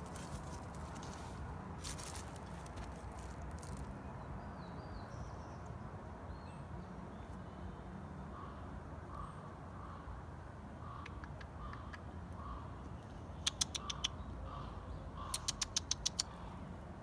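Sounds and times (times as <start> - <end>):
small birds chirping: 0.0 - 7.6, 10.9 - 16.7
crow cawing: 14.5 - 15.4.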